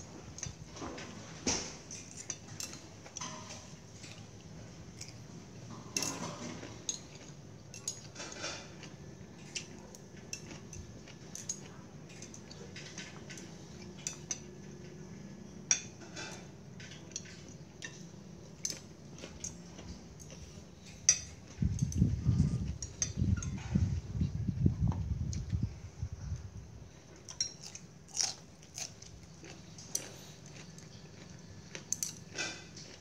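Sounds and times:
utensils clinking on plates: 0.3s - 4.3s, 5.0s - 15.0s, 15.6s - 23.9s, 27.2s - 29.0s, 29.8s - 33.0s
low uneven rumble: 20.0s - 27.1s.

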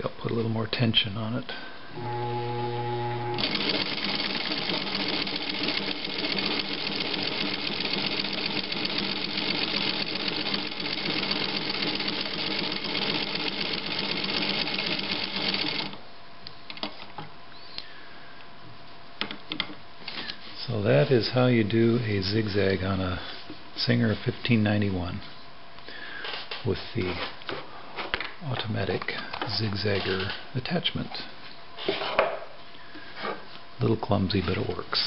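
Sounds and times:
sewing machine running: 2.0s - 16.0s.

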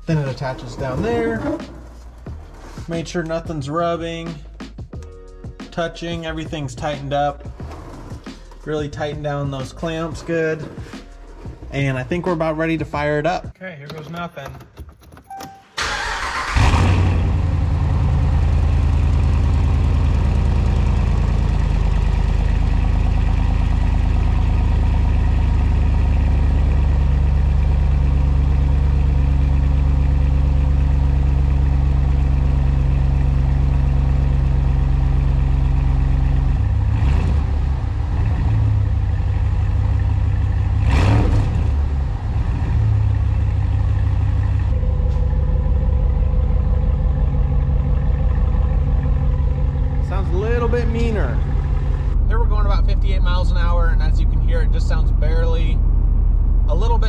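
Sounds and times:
engine revving and idling: 16.0s - 57.0s.

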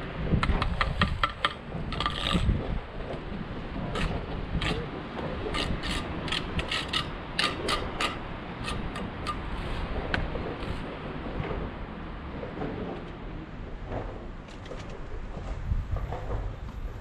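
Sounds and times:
steady low rumble: 0.0s - 17.0s
hand tools scraping stone: 0.4s - 3.2s, 3.8s - 10.0s, 10.6s - 10.8s.

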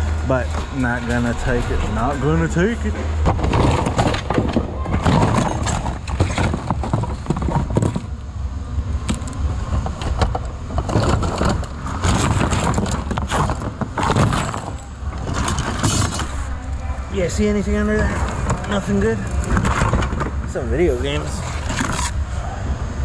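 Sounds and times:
low steady rumble: 0.0s - 23.0s
plastic items clattering: 3.2s - 8.2s, 9.1s - 16.5s, 18.0s - 22.2s.

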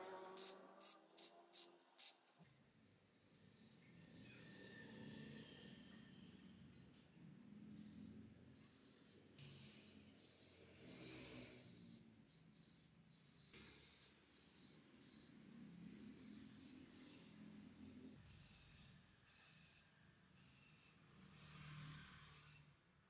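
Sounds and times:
spray paint can hissing: 0.0s - 2.3s.

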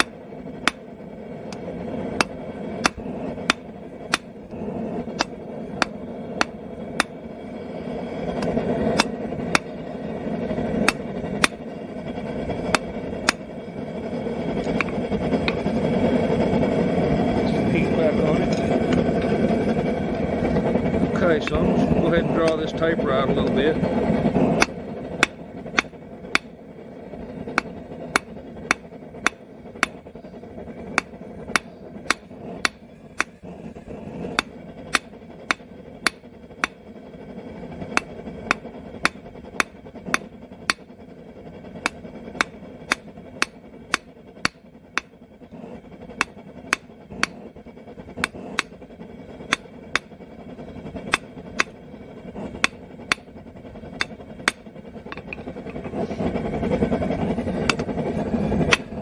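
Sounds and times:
hammer striking steel on anvil: 0.0s - 0.9s, 1.5s - 4.4s, 5.1s - 7.2s, 8.3s - 9.8s, 10.8s - 11.7s, 12.6s - 13.5s, 14.6s - 15.6s, 24.6s - 26.6s, 27.5s - 30.1s, 30.8s - 33.4s, 34.3s - 36.8s, 37.9s - 40.9s, 41.8s - 45.1s, 46.2s - 47.4s, 48.2s - 48.8s, 49.5s - 50.1s, 51.0s - 51.8s, 52.5s - 53.3s, 54.0s - 55.8s, 57.6s - 57.9s, 58.7s - 58.9s.

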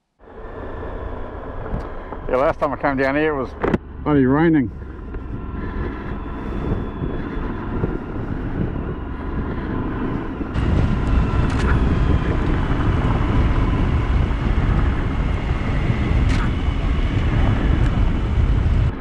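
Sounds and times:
wind noise: 0.2s - 19.0s
motorcycle engine running: 0.5s - 19.0s.

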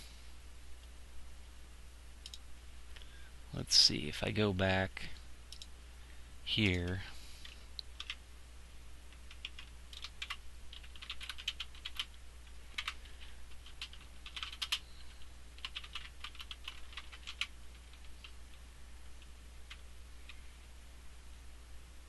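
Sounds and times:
keyboard typing: 6.6s - 8.2s, 9.1s - 18.6s.

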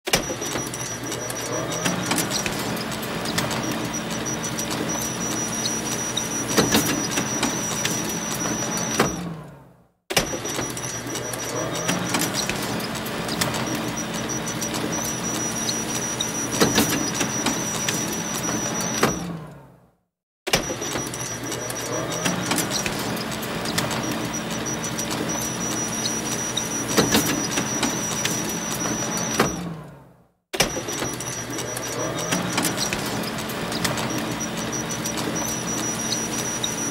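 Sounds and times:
paper feed clicks and clacks: 0.1s - 9.1s, 10.1s - 19.2s, 20.5s - 29.5s, 30.6s - 36.9s
photocopier whirring: 0.1s - 9.5s, 10.2s - 19.6s, 20.6s - 30.0s, 30.6s - 36.9s
photocopier clacks: 10.3s - 19.1s, 30.7s - 36.9s.

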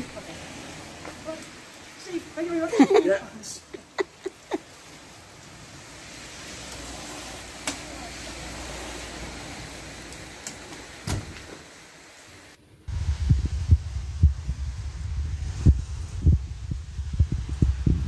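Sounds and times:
rain on wet ground: 0.0s - 18.0s
car door slamming: 11.0s - 11.5s
low rumble: 12.9s - 18.0s
wind buffeting microphone: 12.9s - 18.0s.

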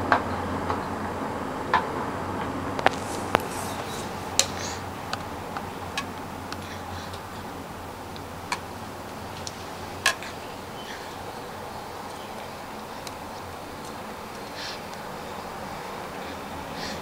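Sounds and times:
steady low hum: 0.0s - 17.0s
baby sucking from bottle: 2.8s - 6.0s.

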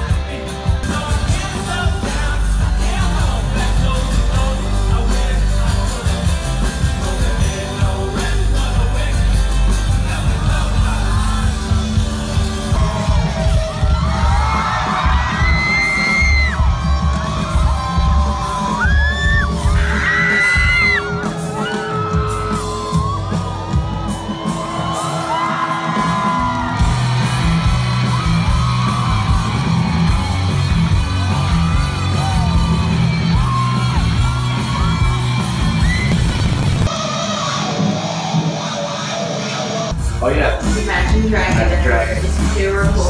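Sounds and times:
singer yelling and singing: 0.0s - 26.8s, 36.9s - 43.0s
crowd noise: 0.0s - 43.0s
live rock band playing: 0.0s - 43.0s.

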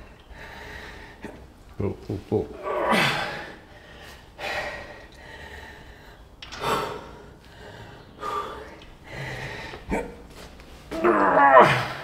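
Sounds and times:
man breathing hard: 0.0s - 1.5s, 2.9s - 10.6s.

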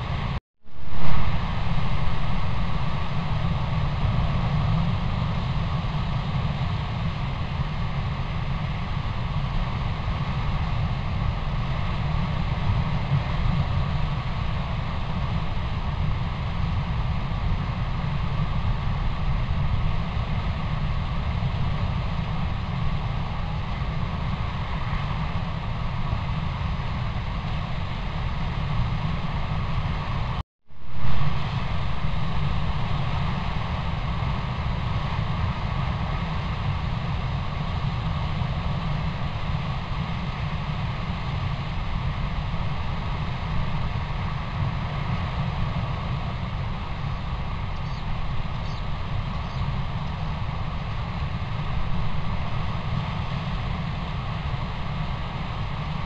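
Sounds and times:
trail camera recording hiss: 0.0s - 16.2s, 30.8s - 56.0s.

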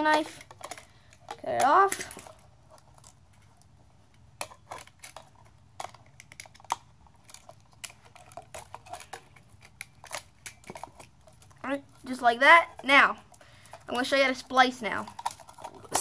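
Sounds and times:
wires handled in plastic box: 4.4s - 16.0s.

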